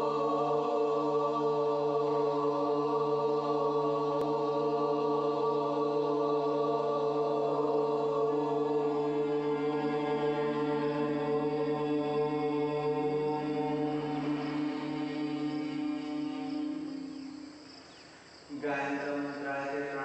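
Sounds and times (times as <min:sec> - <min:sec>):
meditation music drone: 0:00.0 - 0:20.0.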